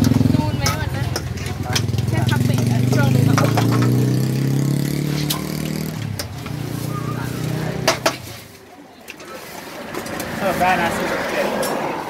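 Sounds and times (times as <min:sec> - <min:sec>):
vehicle engine humming: 0:00.0 - 0:08.2.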